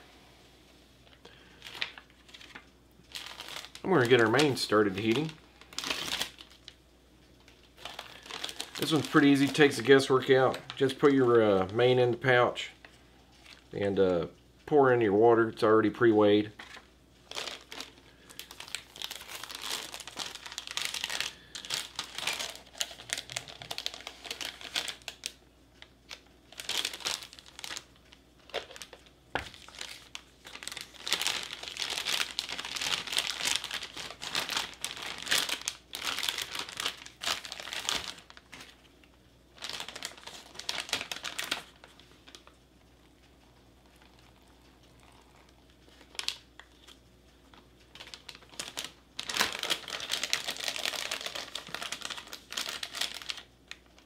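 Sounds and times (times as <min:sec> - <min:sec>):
plastic pouch crinkling: 0:01.2 - 0:06.8, 0:07.4 - 0:12.7, 0:16.4 - 0:42.6, 0:43.8 - 0:54.0.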